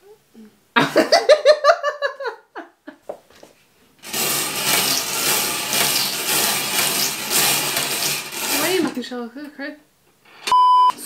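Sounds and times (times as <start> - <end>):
bingo balls rattling in wire cage: 4.0 - 9.0.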